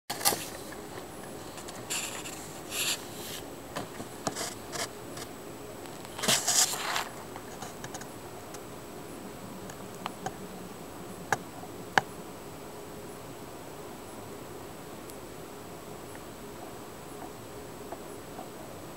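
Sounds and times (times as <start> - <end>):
scratching and rubbing: 0.1 - 5.3, 6.0 - 8.1
low steady hiss: 0.1 - 18.9.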